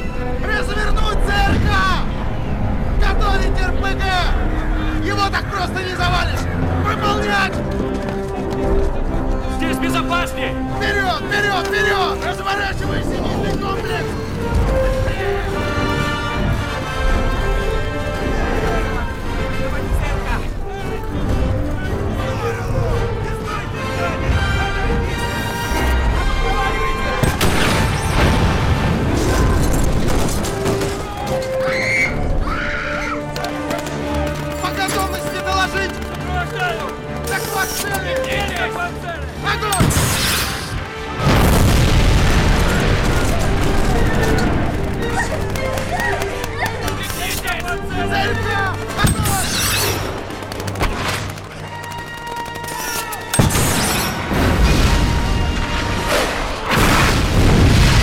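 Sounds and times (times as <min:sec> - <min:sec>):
orchestral score: 0:00.0 - 0:58.0
rumble of firing and blasts: 0:26.8 - 0:31.4, 0:39.8 - 0:45.7, 0:48.8 - 0:51.6, 0:53.3 - 0:58.0
people shouting: 0:30.8 - 0:39.8, 0:43.0 - 0:50.0, 0:51.5 - 0:53.5
missile launch blasts: 0:53.4 - 0:58.0.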